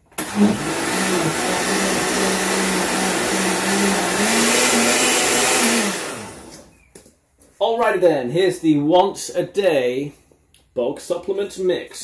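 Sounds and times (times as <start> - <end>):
blender motor whine: 0.1 - 6.7.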